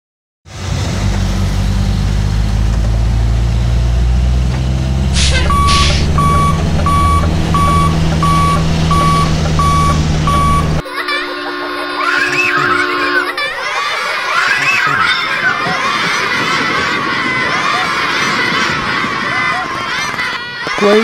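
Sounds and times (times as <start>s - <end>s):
diesel engine rumbling: 0.5s - 10.8s
reversing alarm beeping: 5.1s - 13.4s
short hisses: 5.2s - 6.2s.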